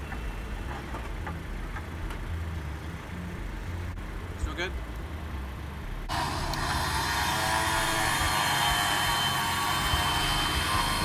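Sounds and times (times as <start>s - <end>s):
electric winch whining: 6.1s - 11.0s.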